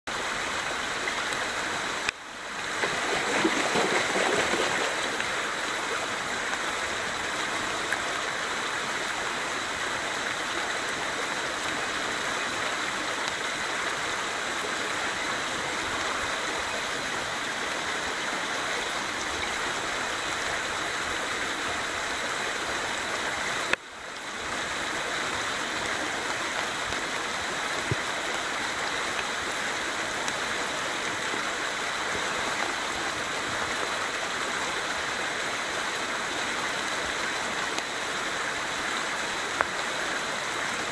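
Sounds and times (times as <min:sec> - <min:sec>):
creek rushing over riffles: 0:02.7 - 0:06.2.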